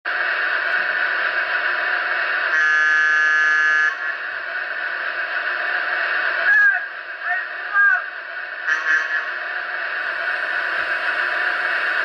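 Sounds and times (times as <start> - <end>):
electric locomotive running hiss: 0.1 - 12.0
train horn blast: 2.5 - 4.1, 8.7 - 9.4.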